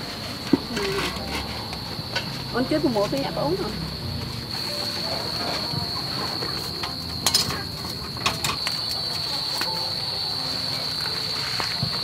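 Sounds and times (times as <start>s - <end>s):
high-pitched insect drone: 0.7s - 12.0s.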